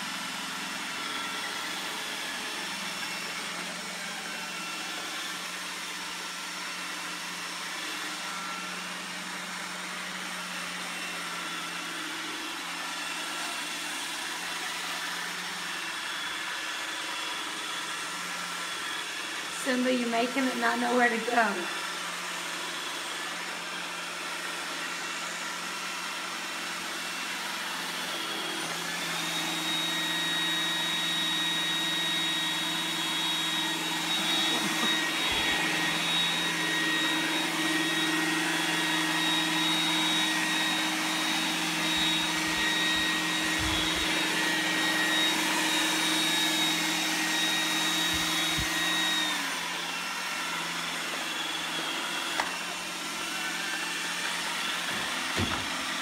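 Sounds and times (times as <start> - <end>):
robot vacuum whirring: 0.0 - 56.0.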